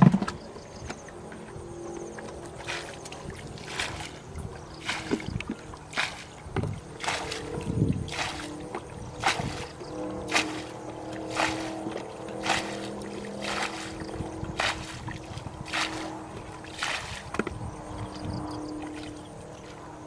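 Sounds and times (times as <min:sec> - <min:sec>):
splash of flung water: 0:04.8 - 0:06.4, 0:07.0 - 0:08.6, 0:09.2 - 0:09.7, 0:10.3 - 0:17.4.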